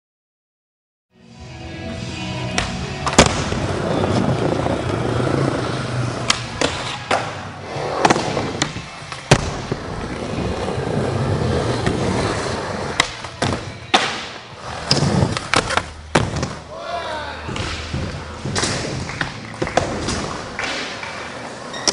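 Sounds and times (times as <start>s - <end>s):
skateboard pops and landings: 2.6s - 3.7s
skateboard wheels rolling: 3.0s - 16.6s, 17.7s - 21.9s.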